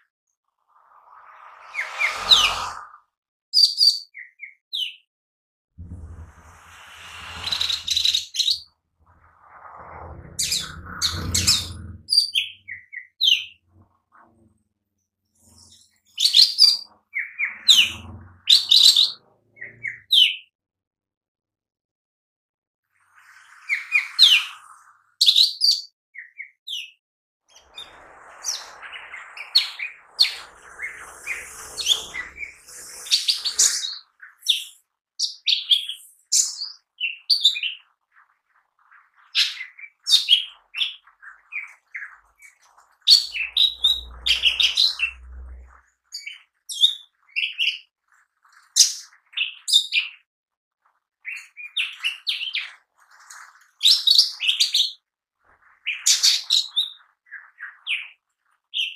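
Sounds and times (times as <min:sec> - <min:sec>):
bird singing high chirps: 0:03.6 - 0:05.0, 0:06.8 - 0:08.7, 0:39.4 - 0:47.9.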